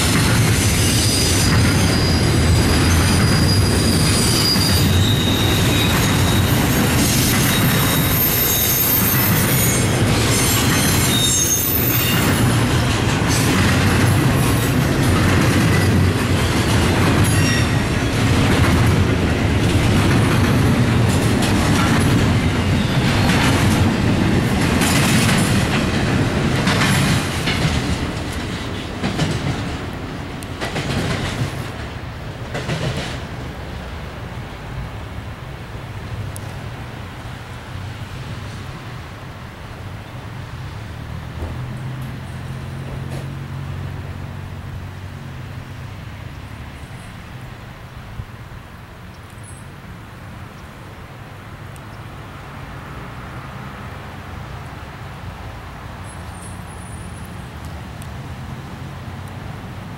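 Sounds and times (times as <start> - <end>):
steel wheels rumbling on rail: 0.0 - 50.4
high wheel squeals: 0.3 - 13.5, 15.7 - 18.3.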